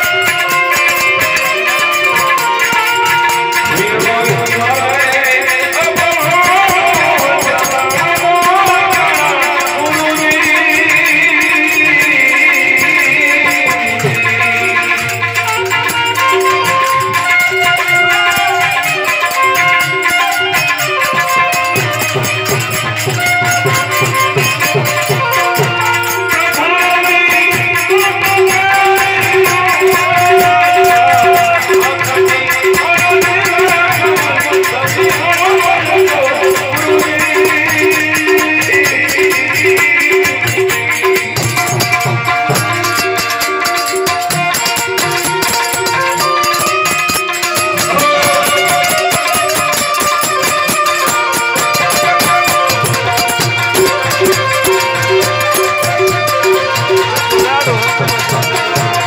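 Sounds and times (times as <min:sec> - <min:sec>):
hand percussion beat: 0:00.0 - 0:59.0
harmonium chords: 0:00.0 - 0:59.0
man singing: 0:00.0 - 0:59.0.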